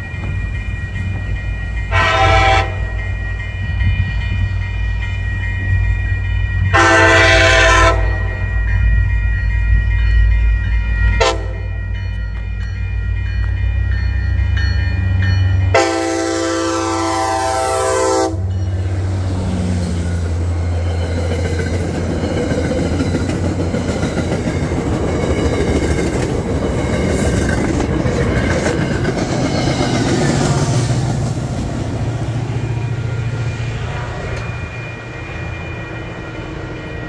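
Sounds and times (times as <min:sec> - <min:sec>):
train coaches rumbling on rails: 0:00.0 - 0:37.0
train horn: 0:01.9 - 0:03.1, 0:06.7 - 0:08.6, 0:11.2 - 0:11.8, 0:15.7 - 0:18.6.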